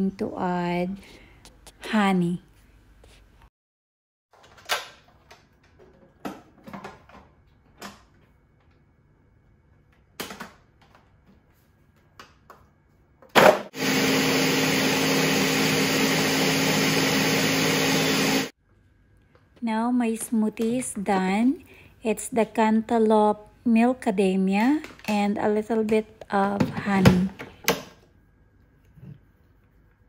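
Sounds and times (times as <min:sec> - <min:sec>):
blender running: 0:13.4 - 0:18.5.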